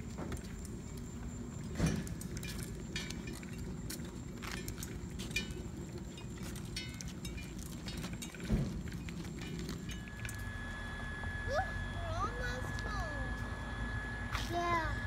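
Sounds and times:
bicycles rattling and clinking: 0.0 - 10.5.

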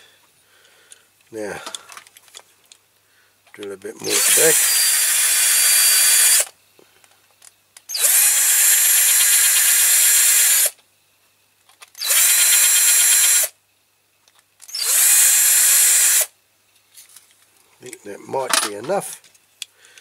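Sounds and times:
electric drill whining: 4.0 - 6.5, 7.9 - 10.8, 12.0 - 13.5, 14.7 - 16.3.

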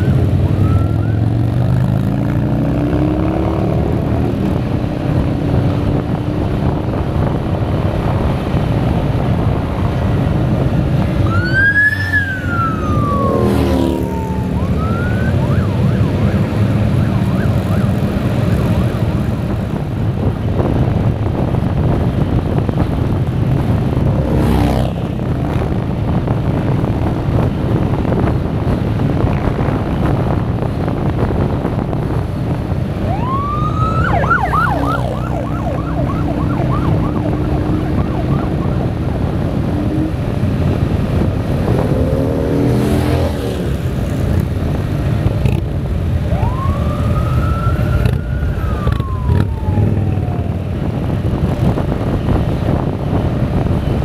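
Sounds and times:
police siren wailing: 0.0 - 1.7, 11.2 - 19.6, 33.0 - 39.6, 46.2 - 51.2
motorcycles passing by: 0.0 - 54.0
wind noise: 0.0 - 54.0
motorcycle engine: 10.8 - 19.4.

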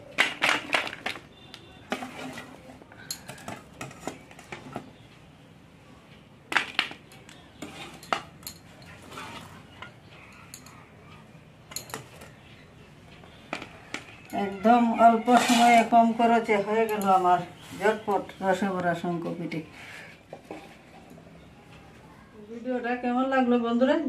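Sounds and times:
metal spoon scraping steel pot: 1.9 - 4.8, 7.6 - 10.7, 13.9 - 18.5.

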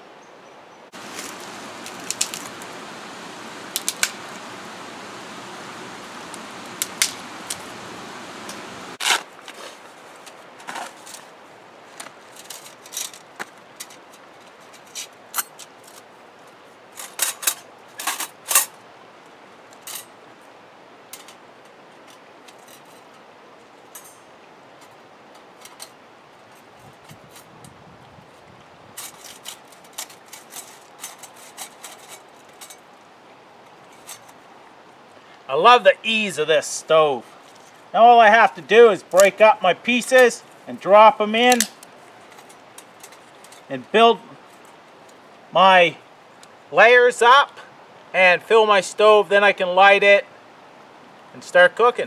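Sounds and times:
brush rustling: 0.9 - 16.1, 24.8 - 33.0, 36.0 - 45.3
dry twigs snapping: 1.0 - 9.3.

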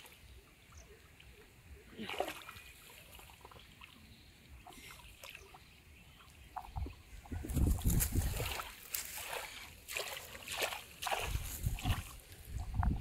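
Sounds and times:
hands splashing in shallow water: 7.5 - 12.3.

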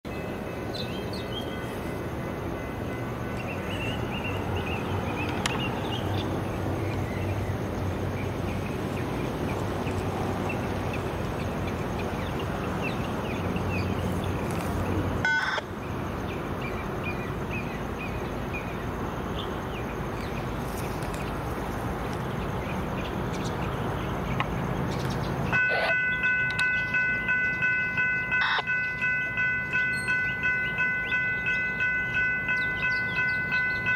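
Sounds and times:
small birds chirping: 16.2 - 29.2.

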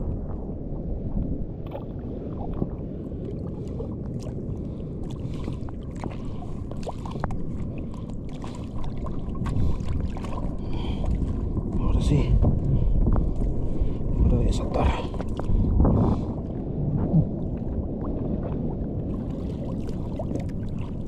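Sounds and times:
water sloshing and lapping: 0.0 - 21.0
small water splashes: 1.6 - 14.0, 17.2 - 21.0.

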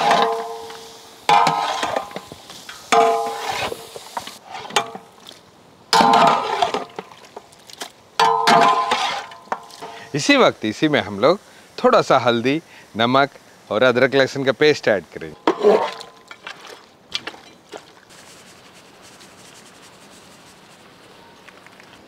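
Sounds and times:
meat frying in hot oil: 0.0 - 4.4
metal ladle scraping a pot: 0.0 - 5.1, 6.0 - 7.0, 8.2 - 10.1.

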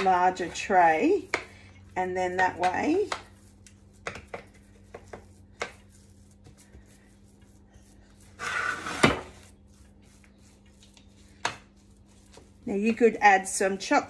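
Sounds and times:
spoon tapping sticky mixture: 2.4 - 6.7
spoon scraping in tray: 8.3 - 9.4.

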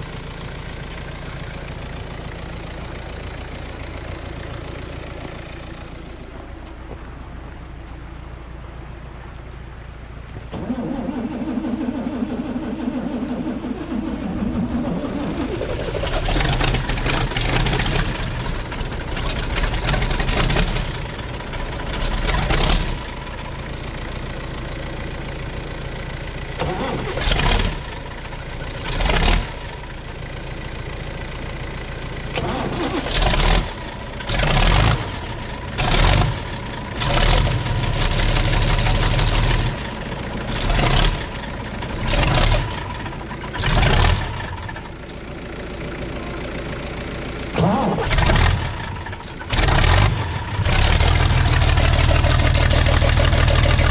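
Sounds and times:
diesel engine revving: 0.0 - 7.6, 10.3 - 53.9
starter motor cranking: 32.2 - 35.1.

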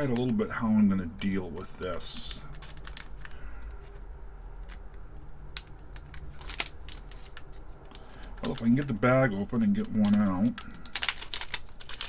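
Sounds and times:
low steady hum: 0.0 - 12.0
crackling metallic plastic bag: 2.1 - 4.0, 5.6 - 12.0.

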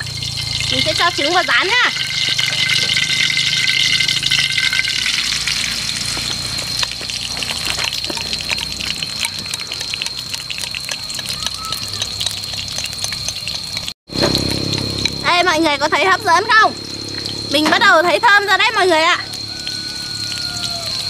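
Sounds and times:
thin high-pitched tone: 0.0 - 7.0
eggs sizzling in a pan: 0.0 - 21.0.

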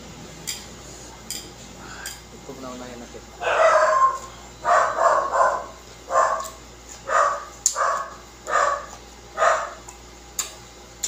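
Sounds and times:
dog barking: 3.4 - 9.8.

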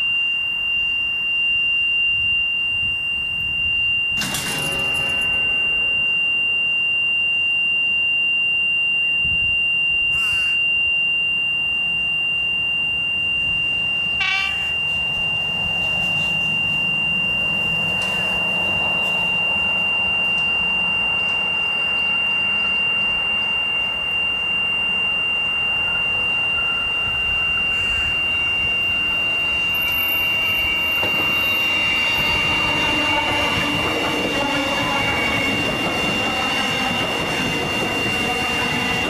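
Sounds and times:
high-pitched electronic tone: 0.0 - 39.0
electric train passing: 4.1 - 7.0, 13.5 - 39.0
train horn toot: 14.2 - 14.8, 31.0 - 39.0.

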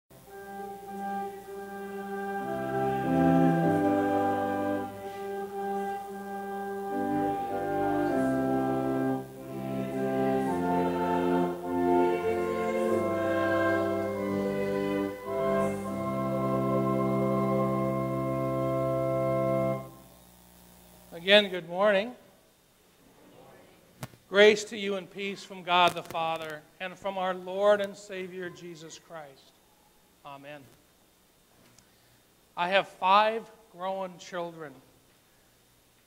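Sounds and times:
organ playing slow chords: 0.1 - 22.0.

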